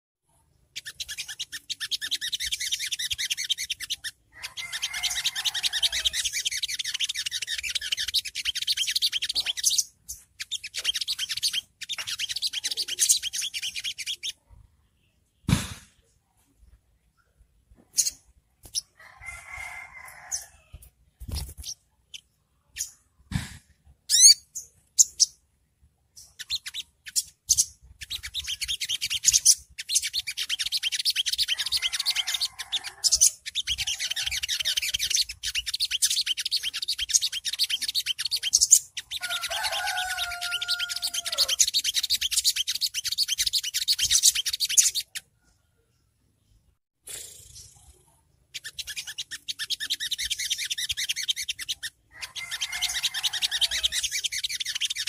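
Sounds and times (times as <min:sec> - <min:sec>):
high twittering bird trill: 0:00.5 - 0:15.2, 0:17.1 - 0:23.2, 0:24.0 - 0:45.6, 0:47.2 - 0:55.0
sunbird chirps: 0:00.7 - 0:14.5, 0:26.2 - 0:45.3, 0:47.4 - 0:55.0
rooster crowing: 0:04.4 - 0:06.2, 0:19.0 - 0:20.7, 0:31.6 - 0:33.3, 0:39.2 - 0:41.6, 0:52.1 - 0:54.0.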